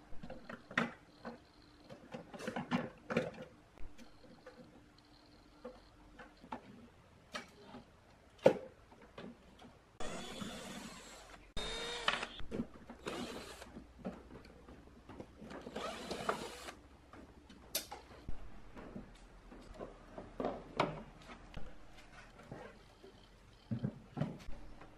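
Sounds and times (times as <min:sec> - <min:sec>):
cordless drill whirring: 0:10.0 - 0:12.4, 0:13.0 - 0:13.7, 0:15.7 - 0:16.8.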